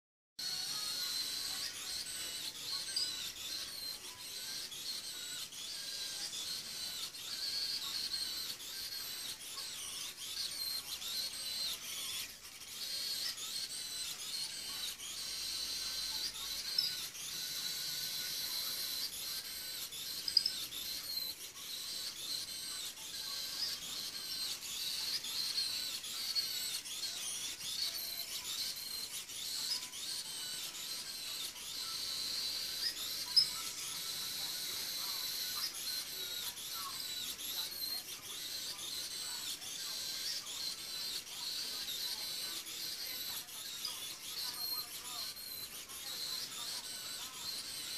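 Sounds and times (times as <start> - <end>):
small robot motors whining: 0.4 - 47.9.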